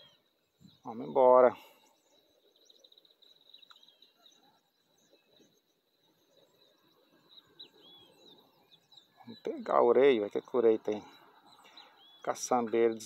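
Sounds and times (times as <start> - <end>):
faint bird chirps: 0.0 - 13.0
faint high insect-like tone: 1.8 - 9.3.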